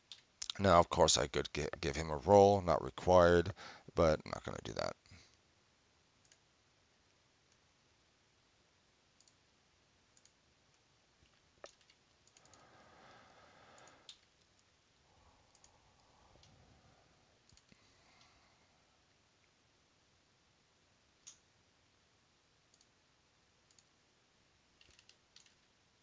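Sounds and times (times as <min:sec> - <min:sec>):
computer mouse clicks: 0:00.1 - 0:00.6, 0:06.2 - 0:06.4, 0:09.2 - 0:09.4, 0:10.2 - 0:10.4, 0:11.2 - 0:12.6, 0:13.8 - 0:14.7, 0:15.5 - 0:15.8, 0:17.4 - 0:18.3, 0:21.2 - 0:21.4, 0:22.7 - 0:23.0, 0:23.6 - 0:24.0, 0:24.8 - 0:25.7.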